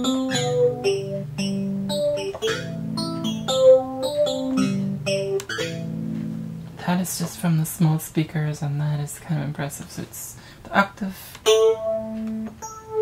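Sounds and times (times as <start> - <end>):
synthesizer chords and melody: 0.0 - 6.8, 11.5 - 13.0.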